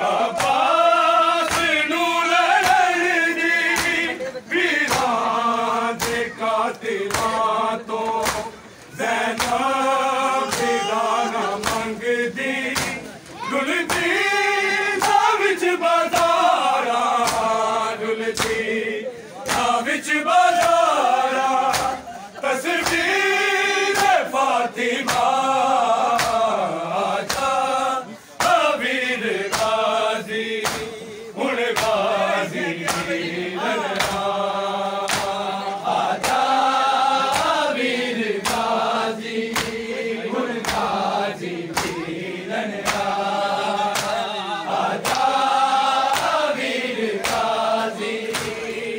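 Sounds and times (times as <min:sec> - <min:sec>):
men chanting in unison: 0:00.0 - 0:48.9
hands slapping bare chests: 0:00.3 - 0:00.8, 0:01.4 - 0:01.9, 0:02.5 - 0:03.0, 0:03.6 - 0:04.1, 0:04.8 - 0:12.0, 0:12.6 - 0:13.1, 0:13.8 - 0:14.2, 0:15.0 - 0:15.3, 0:16.0 - 0:17.7, 0:18.3 - 0:18.7, 0:19.4 - 0:19.8, 0:20.5 - 0:22.0, 0:22.7 - 0:23.2, 0:23.9 - 0:24.3, 0:25.0 - 0:26.6, 0:27.2 - 0:27.6, 0:28.4 - 0:28.8, 0:29.4 - 0:30.0, 0:30.6 - 0:31.0, 0:31.6 - 0:32.2, 0:32.8 - 0:33.2, 0:33.9 - 0:39.9, 0:40.5 - 0:44.3, 0:44.9 - 0:48.8.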